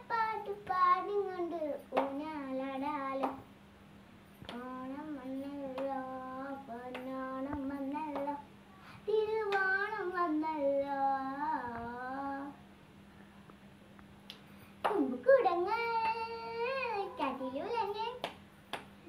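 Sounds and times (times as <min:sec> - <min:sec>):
girl singing solo: 0:14.9 - 0:18.3.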